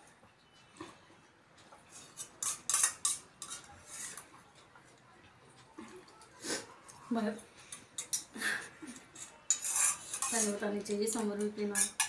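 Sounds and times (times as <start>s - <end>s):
spoons clinking in steel bowls: 1.9s - 4.2s, 7.6s - 8.3s, 8.9s - 12.0s.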